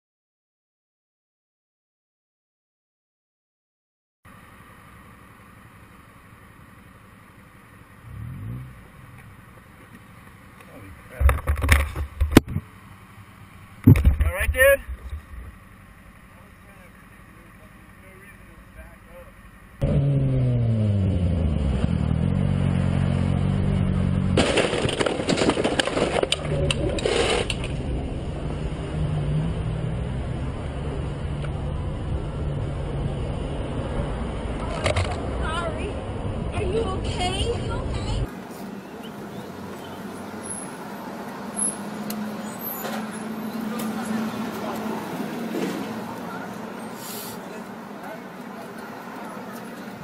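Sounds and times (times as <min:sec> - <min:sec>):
motorcycle engine idling and revving: 0:04.3 - 0:24.4, 0:26.3 - 0:50.0
crash impacts and clattering: 0:24.3 - 0:27.8.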